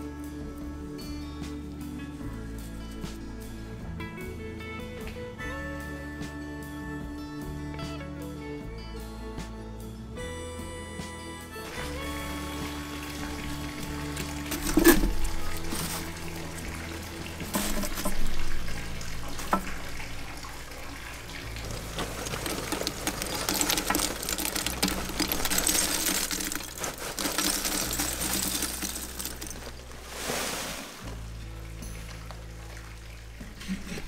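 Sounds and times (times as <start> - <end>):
soft background music: 0.0 - 34.0
charcoal crackling and hissing: 11.6 - 32.8
wood chunks knocking onto charcoal: 13.2 - 16.6, 17.4 - 20.3, 21.5 - 29.9.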